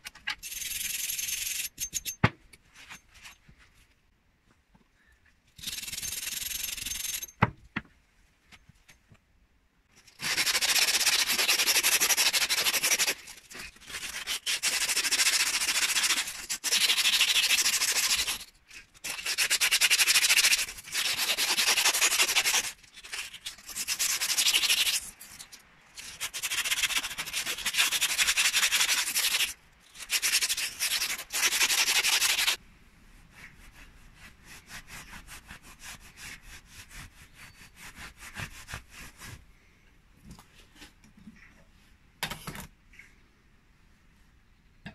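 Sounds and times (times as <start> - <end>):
cloth rubbing metal: 0.5 - 3.8
sandpaper rasping on steel: 5.6 - 7.3, 10.0 - 32.6, 33.3 - 39.4.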